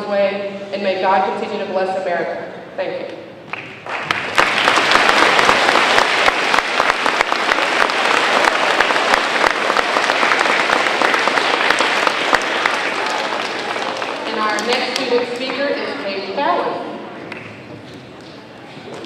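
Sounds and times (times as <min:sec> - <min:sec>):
audience applauding: 0:03.5 - 0:15.6.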